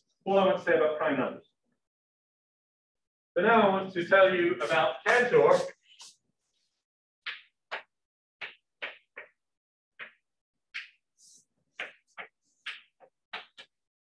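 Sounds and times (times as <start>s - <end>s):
chalk tapping and scraping on blackboard: 4.6s - 13.9s.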